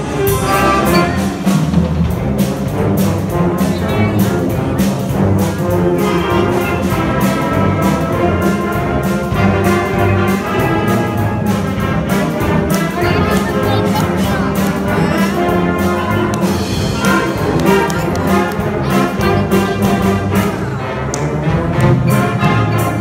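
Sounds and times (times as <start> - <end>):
percussion strokes: 0.0 - 7.4, 11.5 - 23.0
concert band playing: 0.0 - 23.0.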